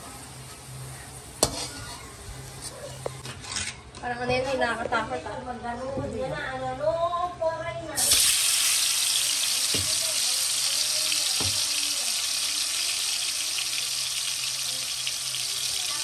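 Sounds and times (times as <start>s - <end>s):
chicken sizzling in hot oil: 0.0s - 2.6s, 8.0s - 16.0s.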